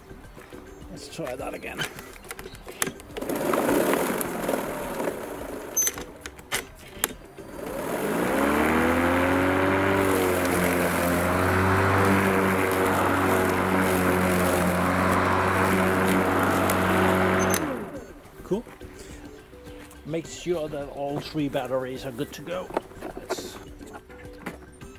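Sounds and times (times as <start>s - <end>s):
electric lawn mower motor whining: 1.7s - 18.5s
clicks: 1.8s - 7.8s
mower blade whooshing: 2.8s - 18.3s.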